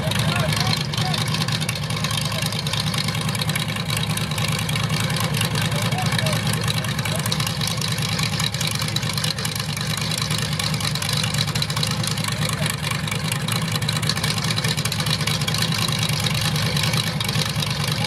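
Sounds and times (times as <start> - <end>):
truck engine idling: 0.0 - 18.0.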